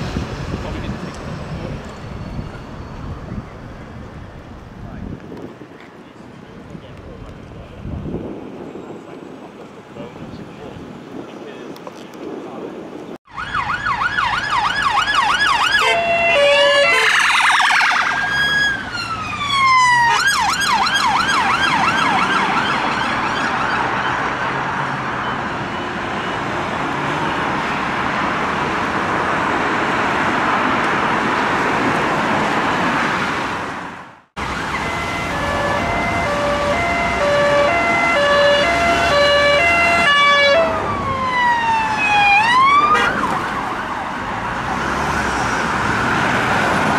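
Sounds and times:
loud traffic noise: 0:00.0 - 0:11.2, 0:13.3 - 0:46.9
siren yelp and wail: 0:13.3 - 0:24.4, 0:34.4 - 0:44.7
two-tone police siren: 0:13.3 - 0:27.8, 0:34.4 - 0:44.8.

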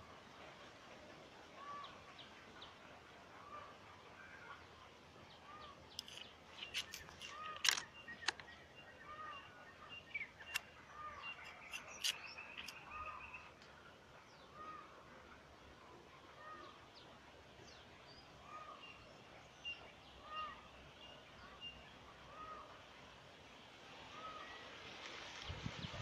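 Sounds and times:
bird call: 0:05.4 - 0:13.5, 0:18.4 - 0:19.1, 0:19.7 - 0:20.7, 0:21.4 - 0:22.8, 0:24.1 - 0:24.7
thin high bird chirps: 0:05.5 - 0:13.5
sharp clicks: 0:05.9 - 0:08.5.

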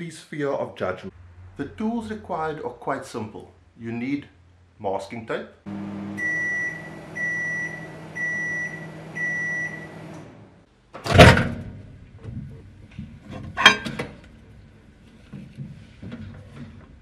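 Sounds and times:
microwave high beep: 0:05.7 - 0:10.1
microwave oven humming: 0:05.7 - 0:10.6.

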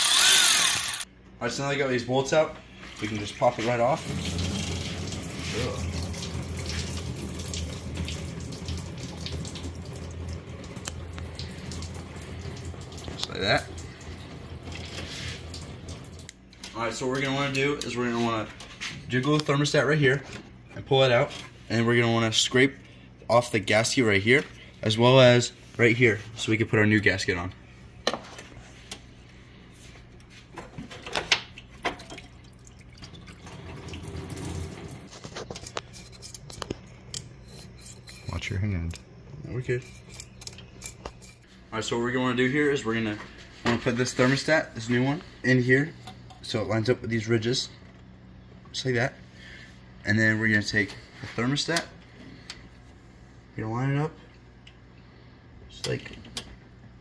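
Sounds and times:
metal parts clicking: 0:00.0 - 0:01.0
steady low hum: 0:00.0 - 0:57.0
coolant trickling into a jug: 0:02.8 - 0:16.4, 0:31.1 - 0:35.9.

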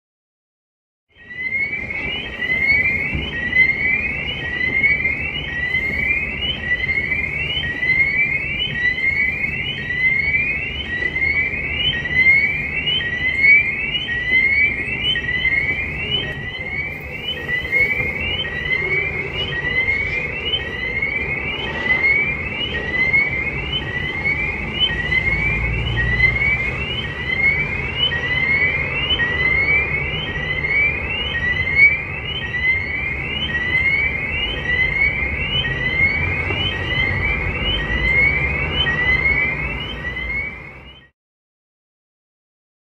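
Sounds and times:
city street traffic rumble: 0:01.1 - 0:41.1
siren sweeping up in pitch: 0:01.1 - 0:41.1.

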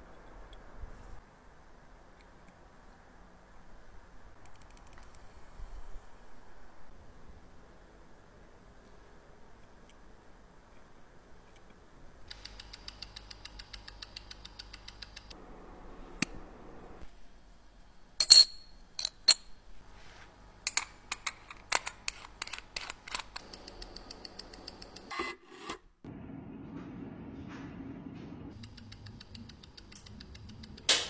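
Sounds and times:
metal clicks of watch parts: 0:12.3 - 0:15.4, 0:20.7 - 0:25.1.

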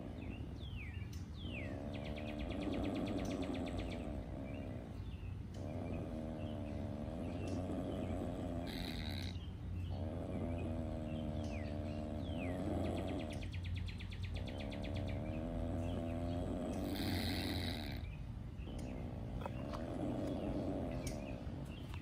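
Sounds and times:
opossum rasping growls: 0:00.0 - 0:00.4, 0:01.4 - 0:22.0.

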